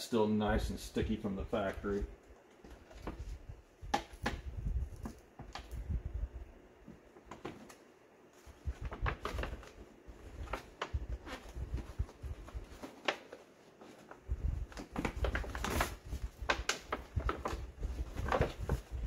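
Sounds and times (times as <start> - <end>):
paper peeling and crackling: 7.2 - 19.0.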